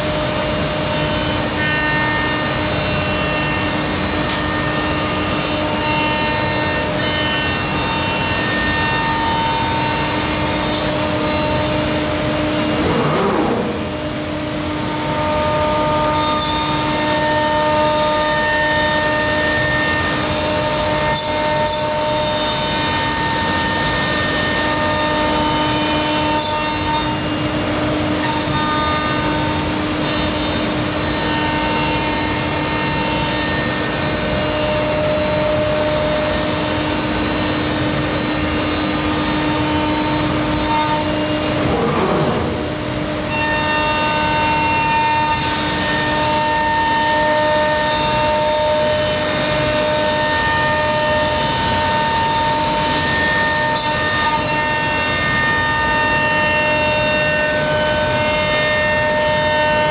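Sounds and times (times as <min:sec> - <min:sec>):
cnc router spindle whine: 0:00.0 - 0:59.9
cutting and dust extraction rushing: 0:12.0 - 0:14.9, 0:41.3 - 0:43.3.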